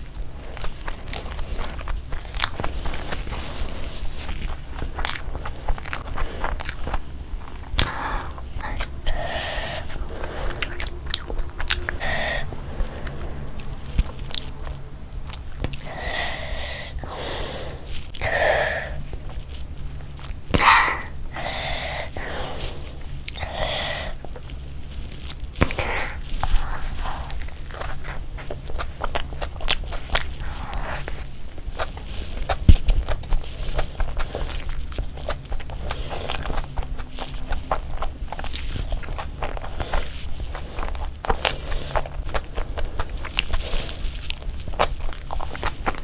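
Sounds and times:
person chewing wetly: 0.0s - 46.0s
breathy squelching bursts: 7.6s - 14.6s, 15.6s - 19.3s, 20.5s - 24.4s.

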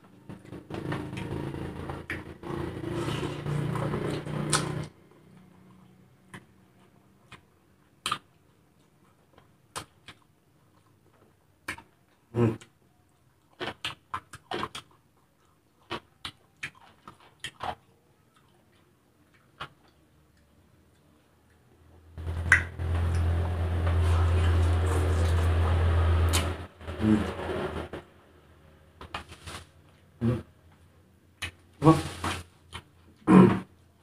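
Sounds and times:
engine noise: 0.4s - 4.9s, 22.2s - 30.4s
slurping noodles: 2.3s - 4.9s
chewing smacks and clicks: 3.7s - 21.7s.

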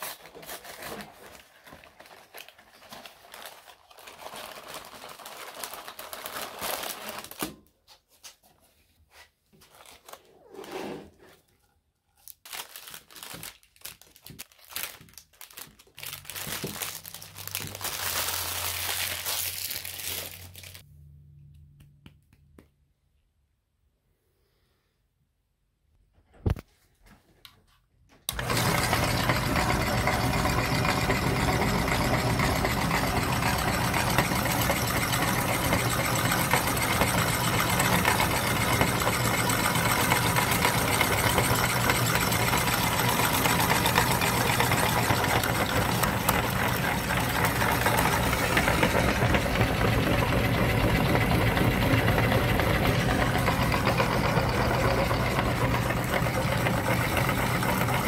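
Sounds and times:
meat grinder motor humming: 28.3s - 58.0s.

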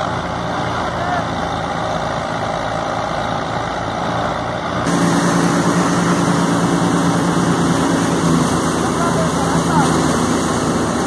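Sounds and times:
tractor engine under load: 0.0s - 11.0s
thresher running: 4.8s - 11.0s
low hum: 4.9s - 9.4s.

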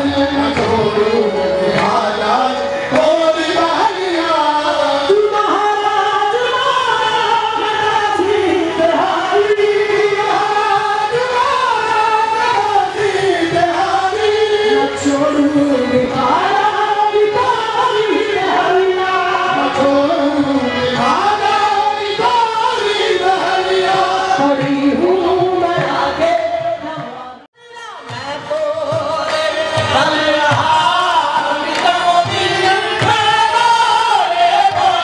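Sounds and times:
chorus singing: 0.0s - 35.0s
lead voice singing ornamented lines: 0.0s - 35.0s.

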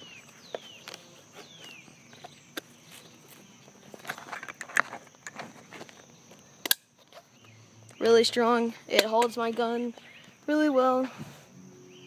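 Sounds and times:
faint high-pitched hiss: 0.0s - 12.0s
holster clip clicks and scuffs: 4.0s - 7.2s.

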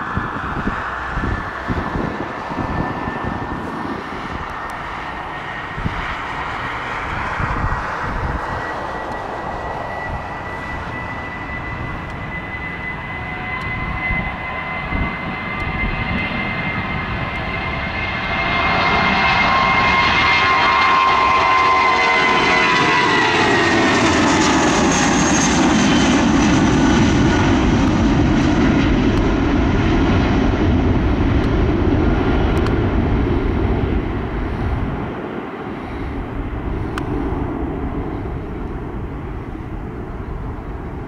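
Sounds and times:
jet engine rumble: 0.0s - 41.0s
jet engine whine: 0.0s - 41.0s.

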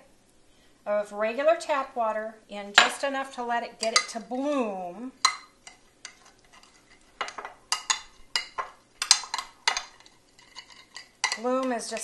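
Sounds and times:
fork scraping glass dish: 9.3s - 11.4s.

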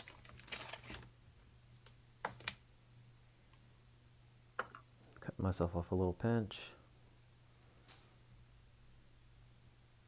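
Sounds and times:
faint low hum: 0.0s - 10.0s
rustle of handling: 7.0s - 8.2s.

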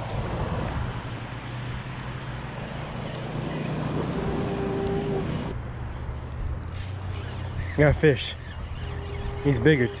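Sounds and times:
fishing reel cranking: 6.2s - 10.0s.

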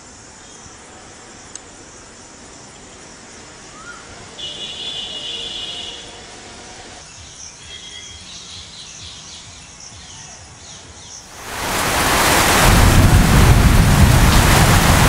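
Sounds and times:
rain rushing: 11.3s - 15.0s
wind rumbling on microphone: 11.4s - 15.0s.

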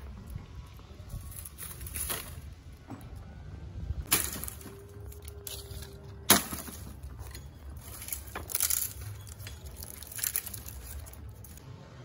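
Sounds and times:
dry branches rustling and cracking: 0.0s - 3.3s, 4.0s - 11.6s
branches crunching: 1.0s - 2.8s, 4.0s - 11.6s.

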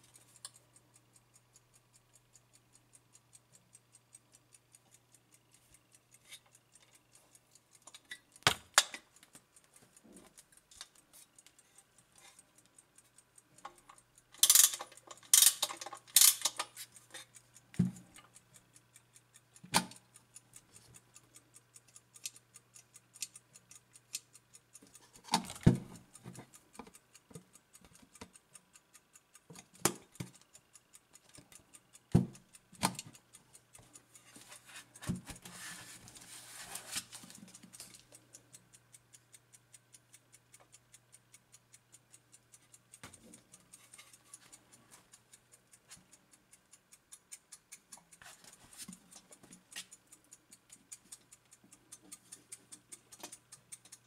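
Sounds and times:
clock ticking fast: 0.0s - 54.0s.

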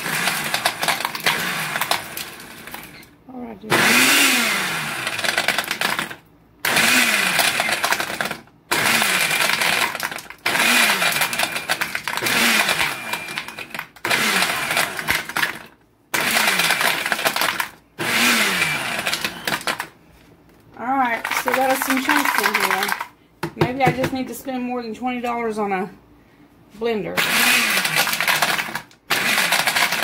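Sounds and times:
blender chopping ice: 0.0s - 3.1s, 3.7s - 19.9s, 21.2s - 23.1s, 27.2s - 30.0s
ice rattling against jar: 21.2s - 23.1s.

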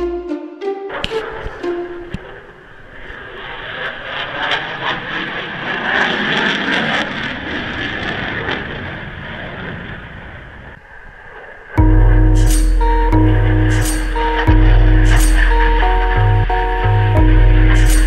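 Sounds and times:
aircraft flying over: 0.8s - 11.8s.

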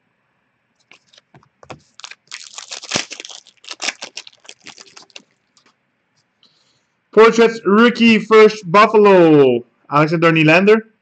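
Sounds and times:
plastic packaging crinkling: 0.8s - 5.7s.

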